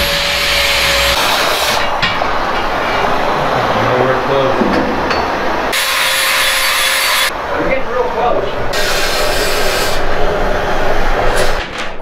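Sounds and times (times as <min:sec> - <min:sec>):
welding arc crackling and hissing: 0:00.0 - 0:01.9, 0:05.7 - 0:07.3, 0:08.7 - 0:10.2.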